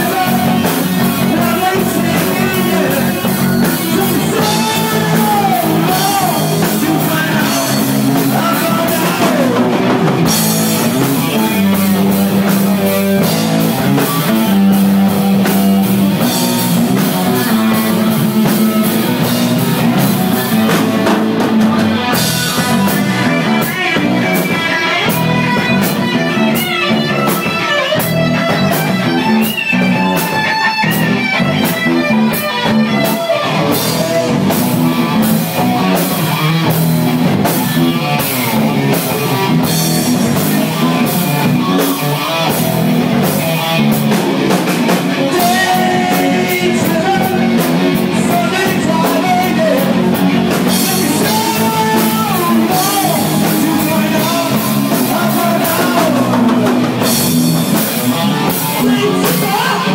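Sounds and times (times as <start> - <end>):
person singing into microphone: 0.0 - 10.0, 45.1 - 57.1, 58.1 - 59.9
drum kit with cymbals: 0.0 - 59.9
electric guitar: 0.0 - 59.9.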